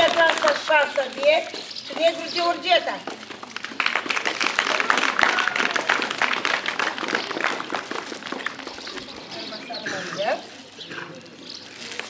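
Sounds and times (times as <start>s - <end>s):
audience applauding: 3.4s - 9.6s.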